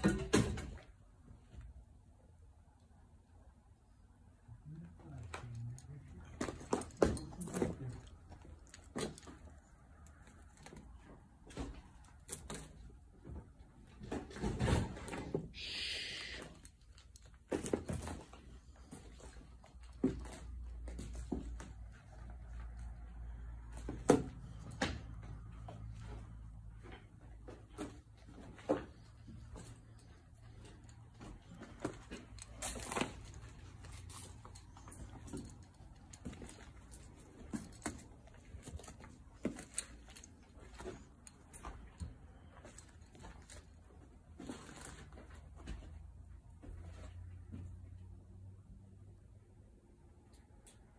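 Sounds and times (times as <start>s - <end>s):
faint low hum: 0.2s - 15.2s
short hiss: 15.6s - 16.5s.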